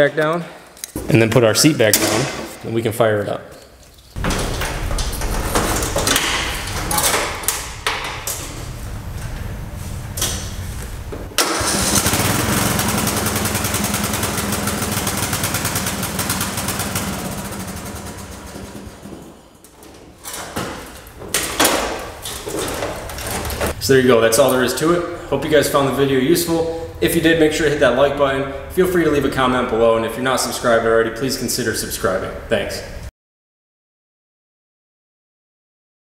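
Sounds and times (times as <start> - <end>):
riding mower engine running: 7.8 - 19.2.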